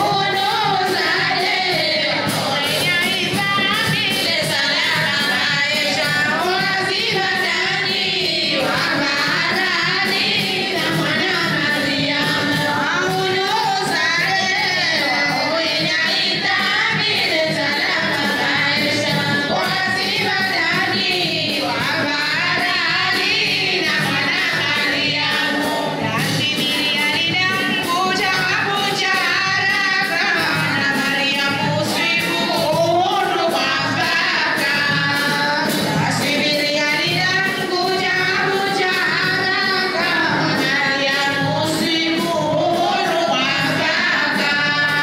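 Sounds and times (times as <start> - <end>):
women singing over a beat: 0.0 - 45.0.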